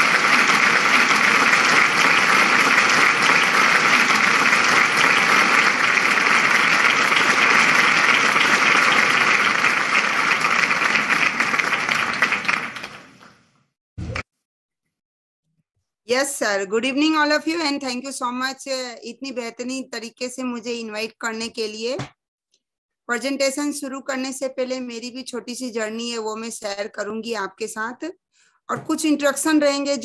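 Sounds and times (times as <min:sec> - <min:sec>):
crowd applause: 0:00.0 - 0:13.4.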